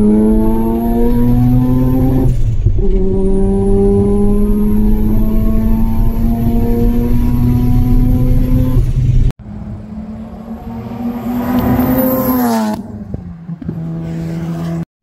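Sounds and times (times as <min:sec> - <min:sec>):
rotary engine droning: 0:00.0 - 0:14.8
race car passing by: 0:09.4 - 0:14.8.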